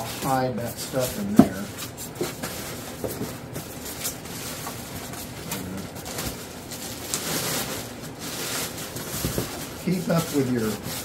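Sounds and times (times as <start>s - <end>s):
plastic bag crinkling: 0.0s - 11.0s
foam rubbing on foam: 6.7s - 11.0s.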